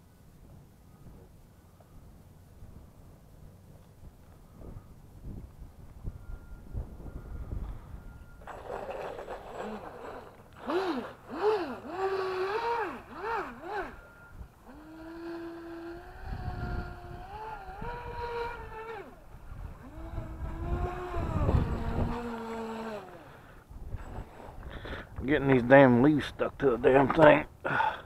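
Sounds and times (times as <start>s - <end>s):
electric motor whining: 6.8s - 24.7s.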